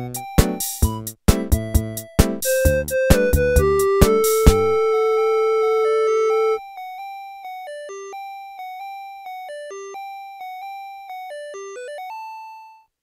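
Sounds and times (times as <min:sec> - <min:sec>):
electronic keyboard melody: 0:00.0 - 0:13.0.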